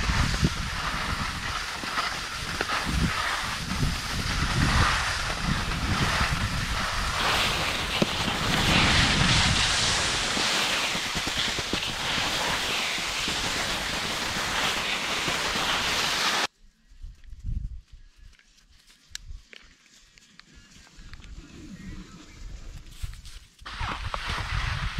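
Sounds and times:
wind buffeting microphone: 0.0 - 15.8, 17.0 - 18.3, 21.0 - 24.9
skis hissing through snow: 0.0 - 16.5, 22.9 - 24.9.

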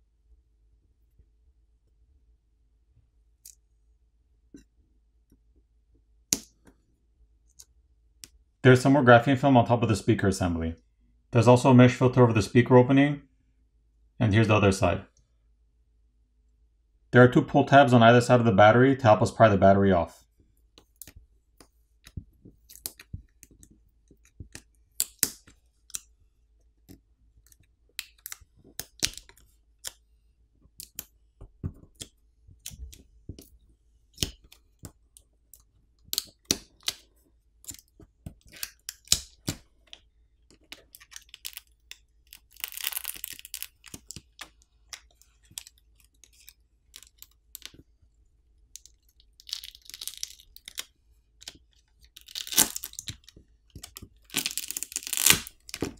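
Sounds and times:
adhesive tearing: 40.6 - 47.8, 48.8 - 55.9.

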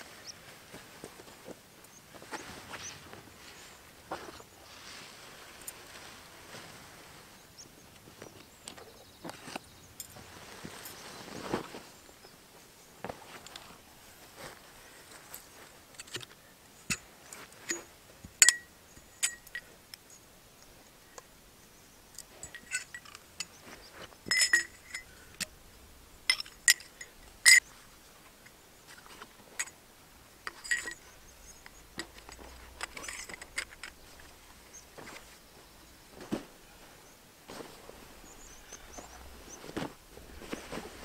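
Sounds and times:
tent pole sections clinking: 1.0 - 7.1, 14.4 - 21.3, 22.0 - 36.9, 37.5 - 41.0.

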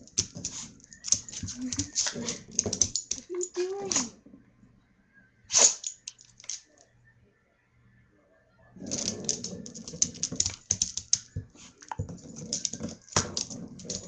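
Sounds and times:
dog claws clicking on floor: 0.0 - 4.1, 8.9 - 14.0.

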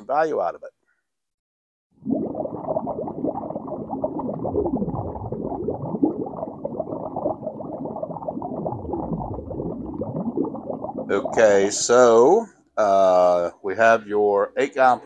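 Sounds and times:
bubbling watery sound effect: 1.9 - 11.8.

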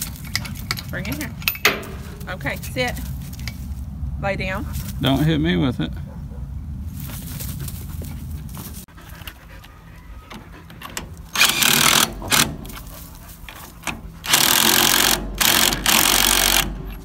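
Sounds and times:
impact driver hammering: 11.4 - 12.7, 14.2 - 17.0.

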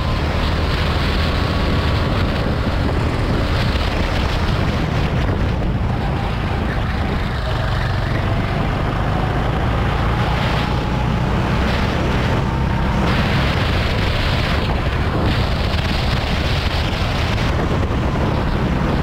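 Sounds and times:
go-kart engine running: 0.0 - 19.0
wind noise on microphone: 0.0 - 19.0.

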